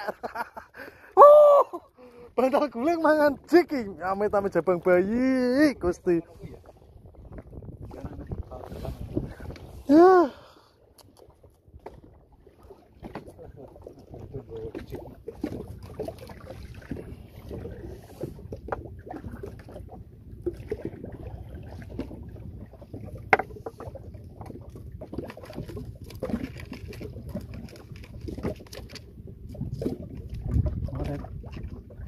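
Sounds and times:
wind and water rumble: 0.0 - 32.0.

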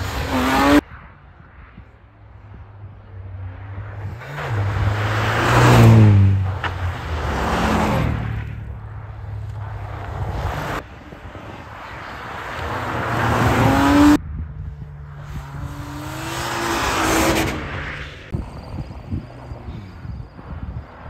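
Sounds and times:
car engines revving hard: 0.0 - 0.8, 3.7 - 14.2, 15.2 - 18.4.

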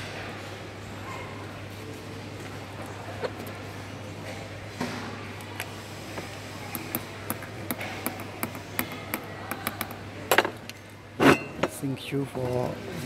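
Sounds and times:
hammer tapping metal tool: 6.7 - 10.0.

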